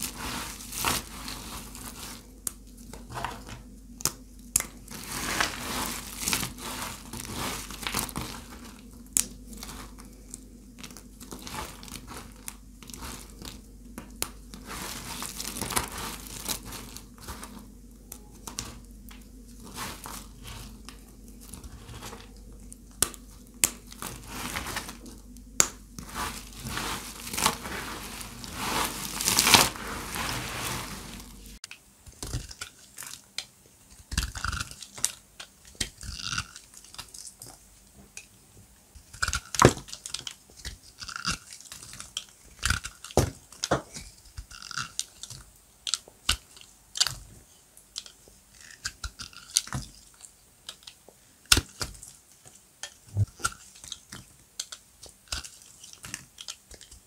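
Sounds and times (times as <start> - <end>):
knife cutting crunchy soap: 34.0 - 37.3, 39.0 - 47.2.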